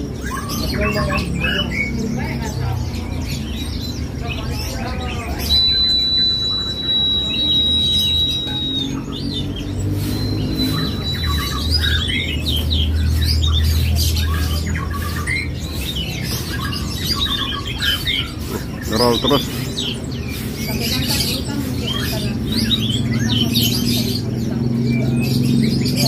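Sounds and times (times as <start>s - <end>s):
bird singing rolling trill: 0.0s - 26.0s
caged songbirds chirping: 0.0s - 26.0s
high steady whistle: 5.4s - 9.2s.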